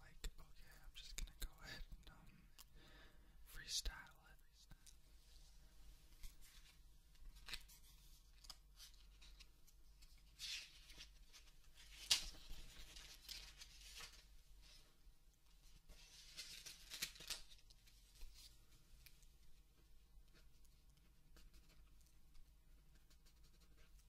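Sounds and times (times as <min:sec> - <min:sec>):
faint hissy noises: 0:00.0 - 0:09.4.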